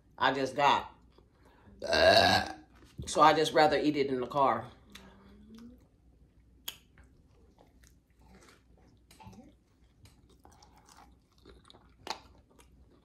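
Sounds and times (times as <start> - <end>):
person chewing food: 4.8 - 13.0.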